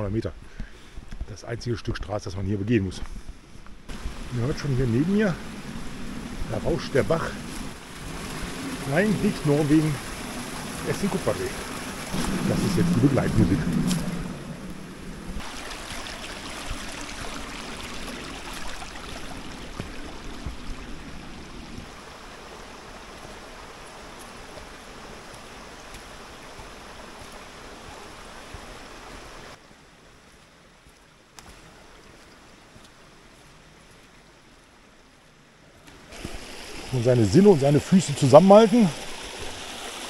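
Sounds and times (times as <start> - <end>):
brook rushing over stones: 3.9 - 29.6, 35.9 - 40.0.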